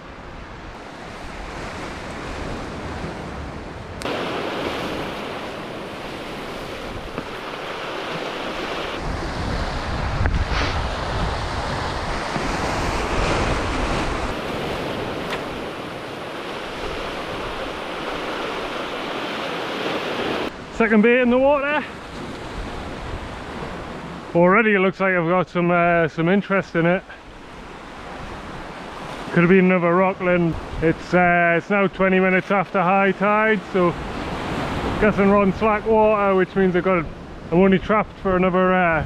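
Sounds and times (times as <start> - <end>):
wind buffeting microphone: 0.0 - 19.0
surf washing over rocks: 0.0 - 24.5, 26.8 - 39.0.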